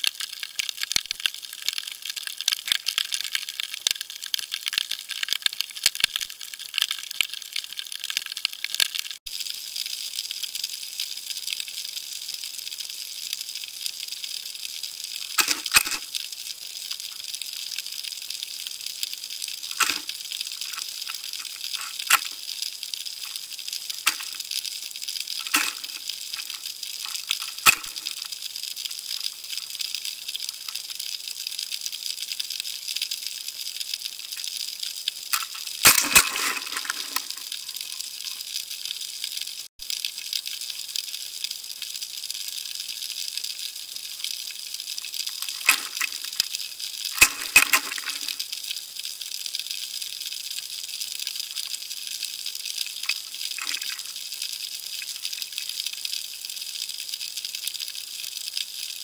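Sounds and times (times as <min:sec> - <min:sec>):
sharp clicks and knocks: 0:15.3 - 0:16.0, 0:19.8 - 0:22.4, 0:24.0 - 0:24.4, 0:25.4 - 0:28.3, 0:35.3 - 0:37.6, 0:45.4 - 0:46.5, 0:47.2 - 0:48.4.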